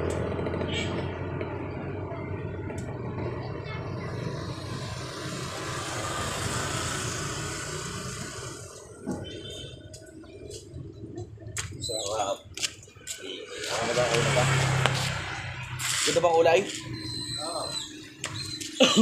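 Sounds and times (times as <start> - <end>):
vehicle engine passing by: 0.0 - 9.1, 13.4 - 18.6.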